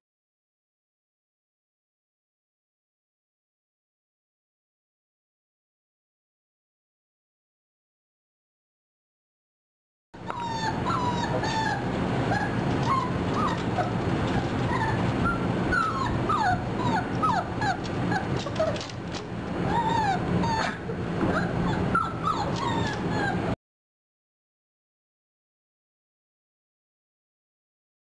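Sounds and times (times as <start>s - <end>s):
puppies whimpering and yipping: 10.2s - 23.6s
steady low hum: 10.2s - 23.6s.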